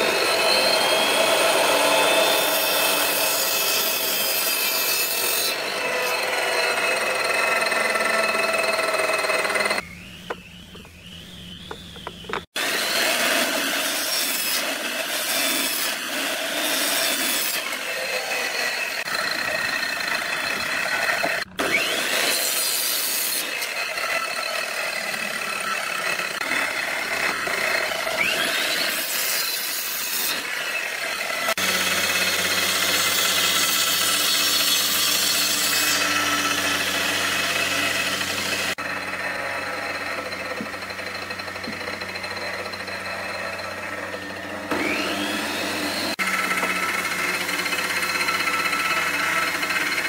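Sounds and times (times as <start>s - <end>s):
miter saw cutting wood: 0.0s - 50.0s.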